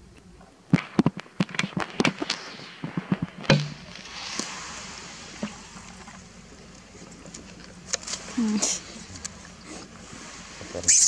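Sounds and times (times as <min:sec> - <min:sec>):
monkeys slurping water: 0:04.0 - 0:11.0.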